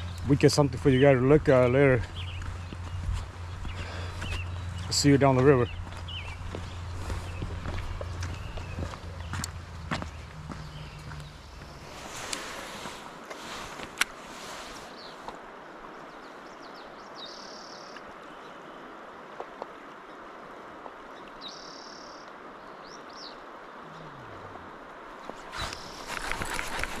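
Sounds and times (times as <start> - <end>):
bird calling: 0.0 - 13.7, 22.9 - 27.0.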